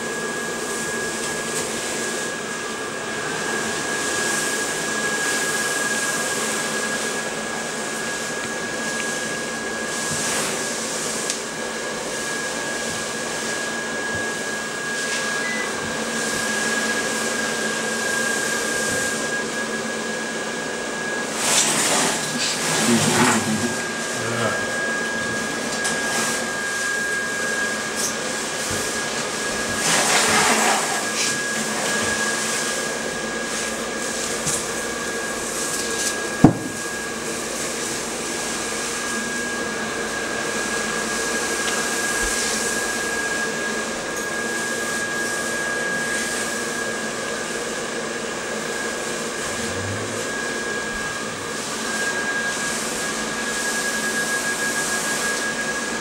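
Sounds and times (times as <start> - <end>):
blower fan whirring: 0.0 - 56.0
thin high hum: 49.2 - 51.8.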